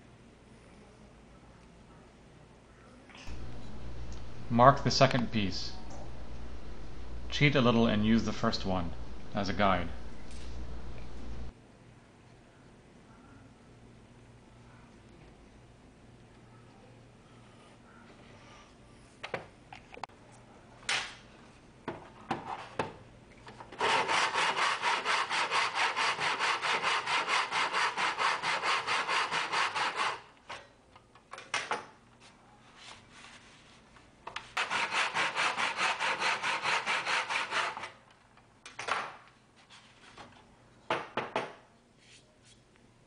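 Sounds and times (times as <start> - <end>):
hand saw cutting wood: 23.8 - 30.3, 34.6 - 37.9.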